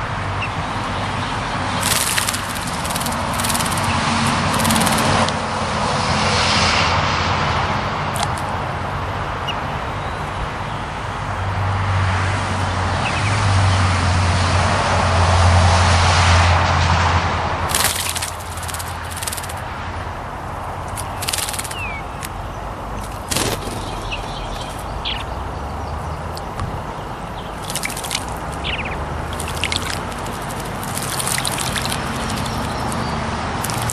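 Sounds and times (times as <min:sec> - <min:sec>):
road traffic rushing: 0:00.0 - 0:33.9
bird splashing water in birdbath: 0:00.4 - 0:05.5, 0:08.1 - 0:08.8, 0:17.6 - 0:33.9.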